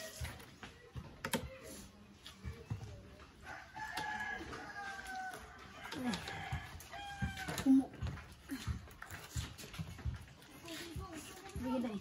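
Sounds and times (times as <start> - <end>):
rooster crowing: 3.4 - 7.6.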